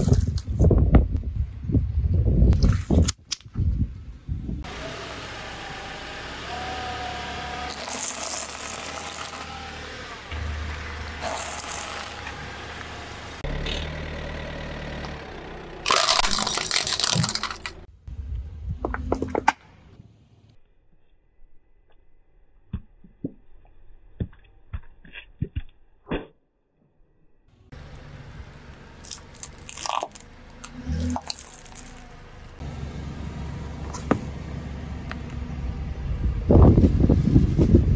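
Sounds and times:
low car engine hum: 3.8s - 20.6s, 27.5s - 37.9s
corn snacks crunching under tyre: 7.7s - 9.4s, 11.2s - 12.2s, 15.9s - 17.8s, 29.0s - 32.0s
water beads popping under tyre: 15.8s - 17.9s, 28.9s - 32.1s.

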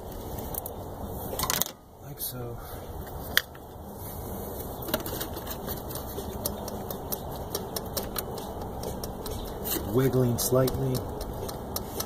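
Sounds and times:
engine parts clicking: 4.8s - 12.0s.

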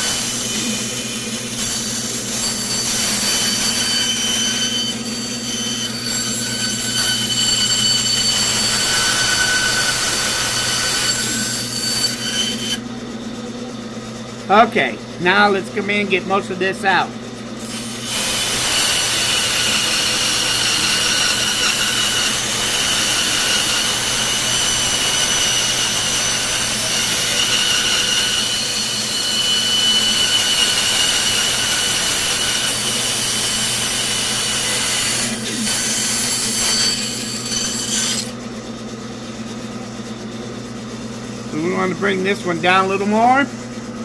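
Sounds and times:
bandsaw cutting wood: 0.0s - 12.9s, 17.6s - 38.4s
saw motor humming: 0.0s - 38.5s.

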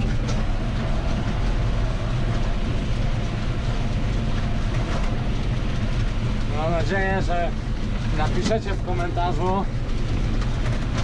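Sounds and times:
tractor engine running: 0.0s - 11.0s
tyres rumbling on cobbles: 0.0s - 11.0s.

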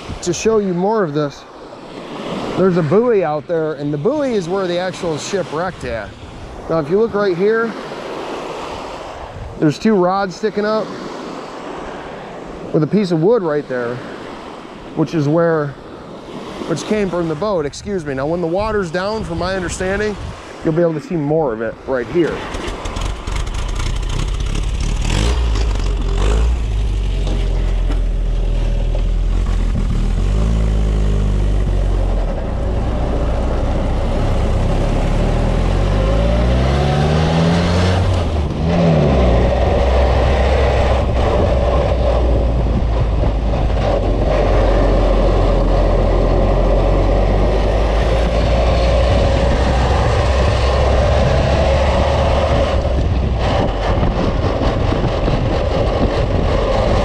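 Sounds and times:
jeep engine accelerating: 22.9s - 57.0s.

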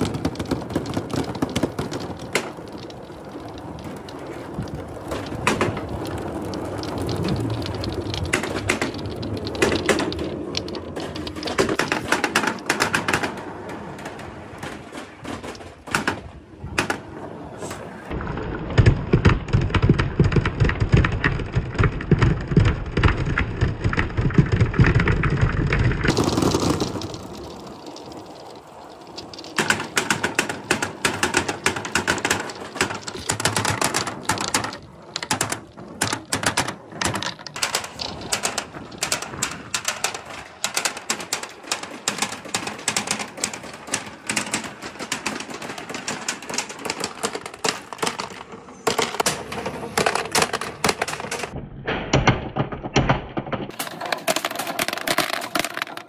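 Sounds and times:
deep rolling rumble: 0.0s - 11.8s
billiard balls clacking in tub: 0.0s - 17.1s, 18.1s - 51.6s, 52.5s - 56.0s
balls clicking down board slope: 0.0s - 56.0s.

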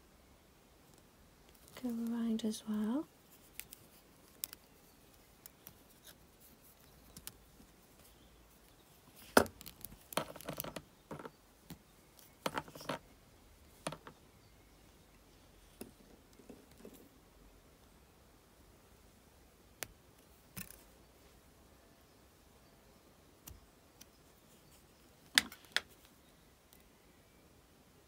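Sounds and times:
small wire clicks: 3.4s - 6.1s.

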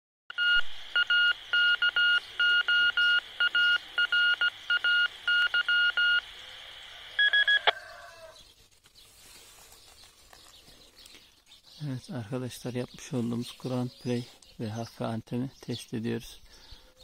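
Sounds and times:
radio beeps: 0.3s - 8.0s
radio static hiss: 0.3s - 8.4s.

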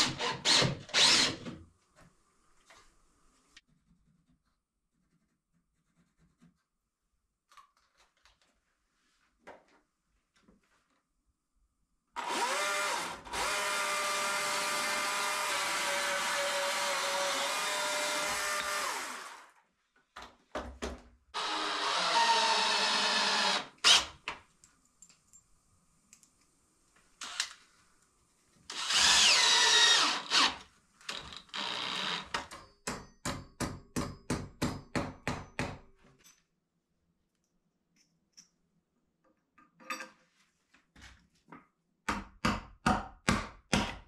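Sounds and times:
cordless drill driving screws: 0.0s - 1.5s, 12.2s - 19.5s, 21.4s - 24.2s, 27.2s - 27.6s, 28.7s - 32.4s
chainsaw cutting wood: 12.2s - 19.5s, 21.4s - 24.1s, 28.7s - 32.3s.

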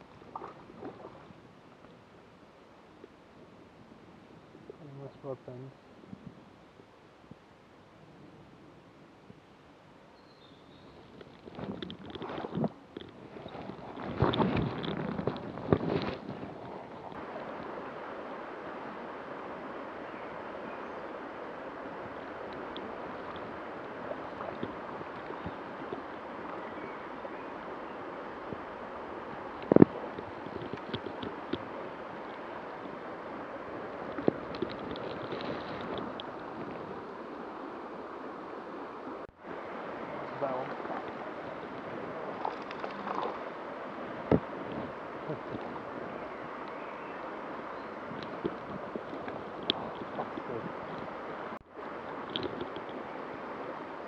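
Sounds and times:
small water splashes: 0.3s - 1.3s, 40.1s - 43.6s
water rushing over stones: 11.5s - 54.0s.

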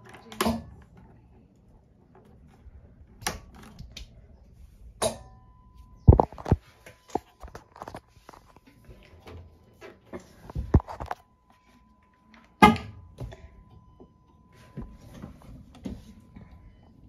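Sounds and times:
faint high steady tone: 5.1s - 7.4s, 10.5s - 17.0s.

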